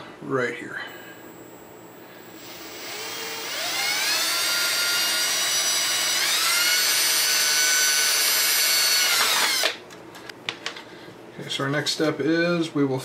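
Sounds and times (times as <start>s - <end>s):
cordless drill whining: 2.1s - 9.8s.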